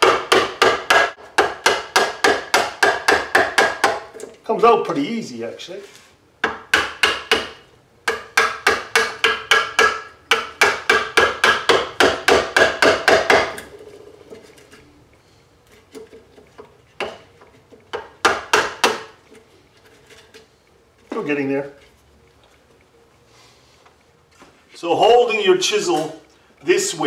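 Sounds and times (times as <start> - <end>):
hammer tapping chisel into wood: 0.0 - 4.2, 6.4 - 13.6, 17.9 - 19.2.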